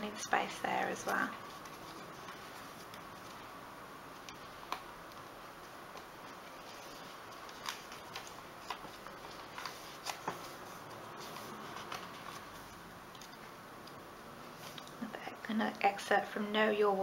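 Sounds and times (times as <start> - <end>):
faint steady hiss: 0.0 - 17.0
paper pages rustling: 0.8 - 3.5, 4.2 - 13.4.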